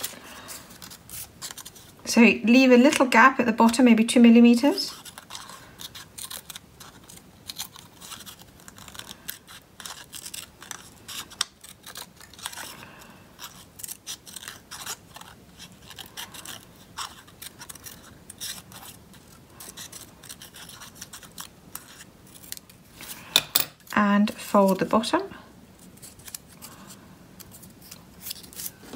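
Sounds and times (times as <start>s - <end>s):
scissors snipping paper: 0.0s - 1.9s, 4.6s - 22.8s, 25.8s - 28.8s.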